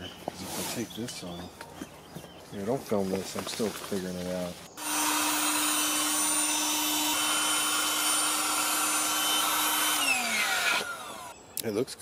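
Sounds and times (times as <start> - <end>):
electric air pump whirring: 4.8 - 11.4
pump motor spinning down: 4.8 - 11.4.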